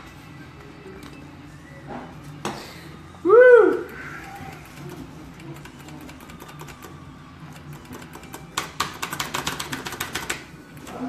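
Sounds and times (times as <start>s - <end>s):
slot machines ticking: 4.0s - 10.5s.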